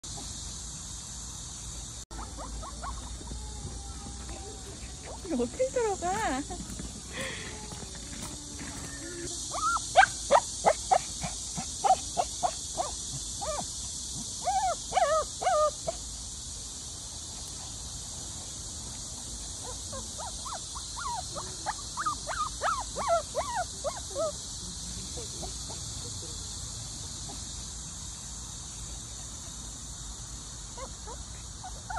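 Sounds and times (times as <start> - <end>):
small dog yapping: 2.2 - 4.2, 8.7 - 13.7, 14.4 - 16.0, 19.6 - 24.4
dog whining and squealing: 8.7 - 11.0, 12.8 - 13.6, 14.4 - 15.8, 19.6 - 24.3.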